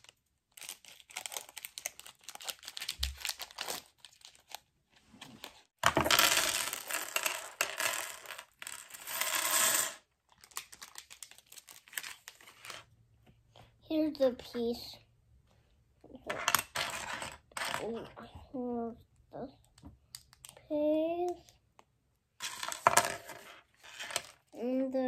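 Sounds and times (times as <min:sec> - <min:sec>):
plastic bag crinkling: 0:00.5 - 0:04.6, 0:10.3 - 0:12.6.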